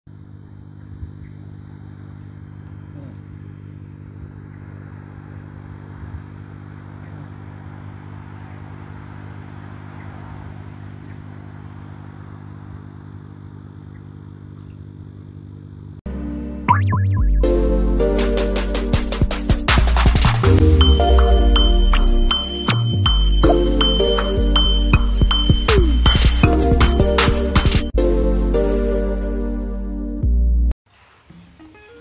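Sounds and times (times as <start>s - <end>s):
air pump humming: 0.1s - 16.0s
loud electronic music: 16.7s - 28.7s.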